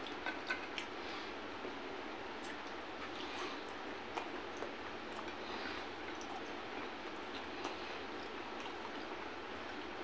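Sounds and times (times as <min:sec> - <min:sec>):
chewing and eating by hand: 0:00.0 - 0:01.8, 0:02.4 - 0:10.0.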